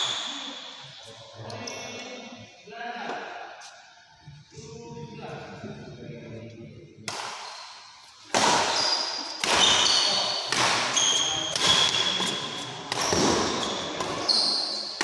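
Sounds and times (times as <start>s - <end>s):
rackets striking shuttlecock: 8.3s - 14.3s
shoes squeaking on court floor: 8.7s - 15.0s.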